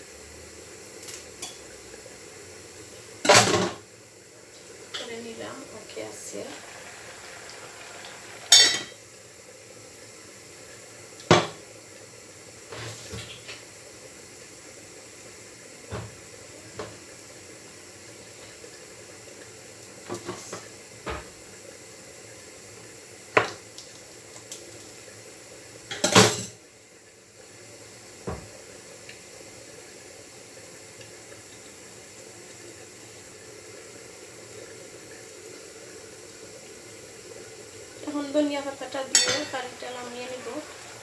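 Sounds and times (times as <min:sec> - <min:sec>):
steady background hiss: 0:00.0 - 0:41.0
pots and dishes clattering: 0:03.2 - 0:03.8, 0:06.6 - 0:09.0, 0:11.3 - 0:11.6, 0:25.9 - 0:26.6, 0:39.1 - 0:41.0.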